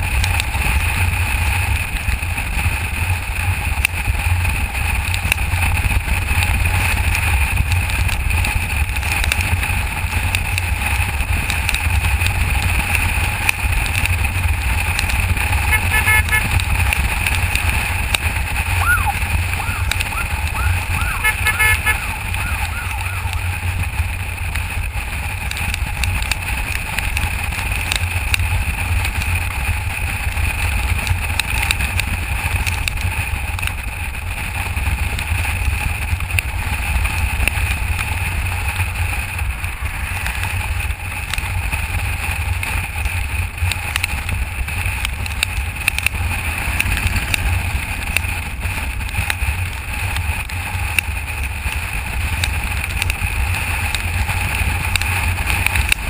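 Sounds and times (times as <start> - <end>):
motorcycle engine rumble: 0.0 - 56.0.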